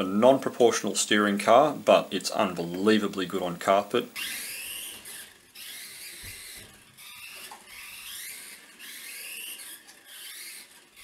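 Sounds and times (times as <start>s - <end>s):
small electric motor whining: 2.6s - 11.0s.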